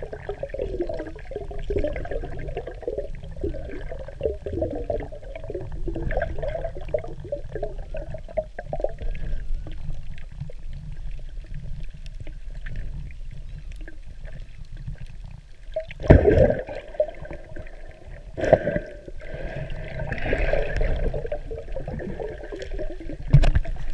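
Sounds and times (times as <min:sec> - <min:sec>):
muffled underwater water churning: 0:00.0 - 0:23.9
water sloshing gushes: 0:10.1 - 0:23.9.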